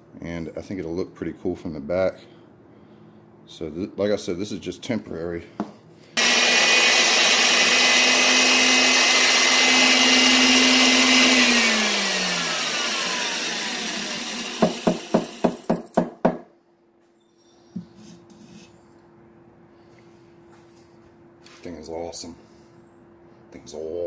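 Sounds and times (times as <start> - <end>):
drill press motor whine: 6.2 - 15.7
drill drilling through steel: 6.2 - 15.9.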